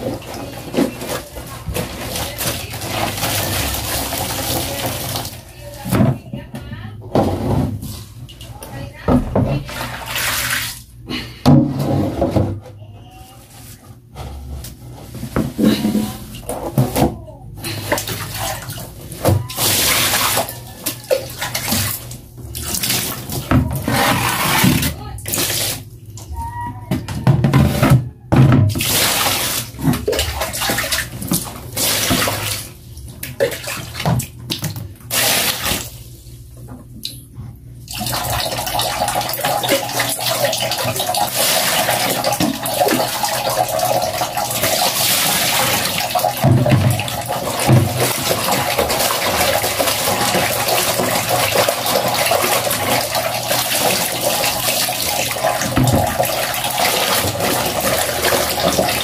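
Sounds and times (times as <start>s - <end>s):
water splashing in basin: 0.0s - 5.5s, 9.4s - 10.9s, 17.7s - 25.9s, 28.6s - 36.2s, 37.9s - 59.0s
water pouring into basin: 37.9s - 59.0s.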